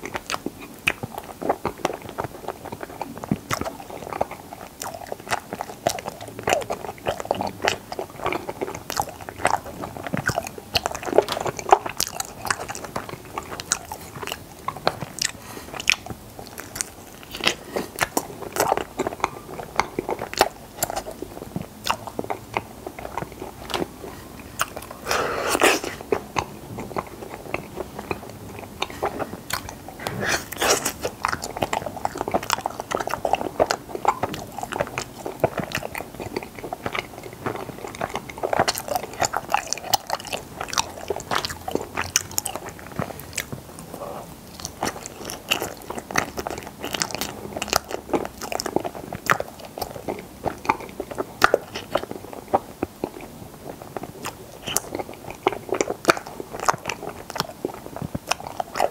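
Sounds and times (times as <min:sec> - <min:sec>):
biting and chewing: 0:00.0 - 0:58.9.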